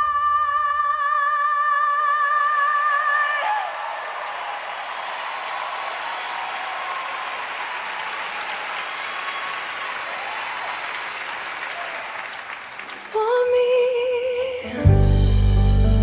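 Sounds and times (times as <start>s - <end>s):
audience applauding: 2.8s - 13.4s.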